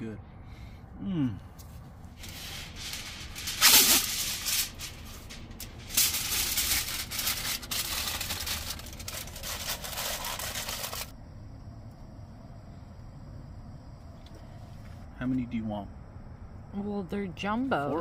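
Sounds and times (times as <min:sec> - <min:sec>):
aluminium foil ripping: 0:02.1 - 0:11.1
foil crumpled by hand: 0:02.2 - 0:11.1.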